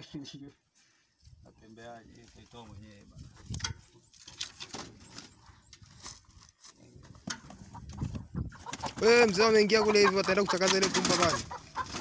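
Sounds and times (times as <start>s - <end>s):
wings flapping: 7.2s - 12.0s.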